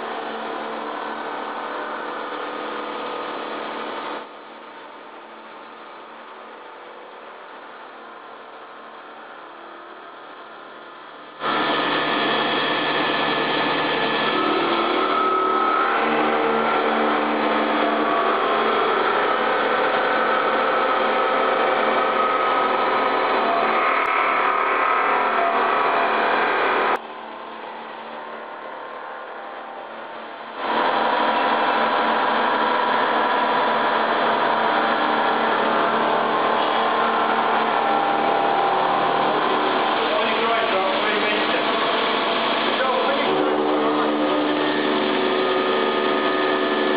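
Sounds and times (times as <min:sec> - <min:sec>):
milling machine cutting steel: 0:11.4 - 0:27.0, 0:30.6 - 0:46.9.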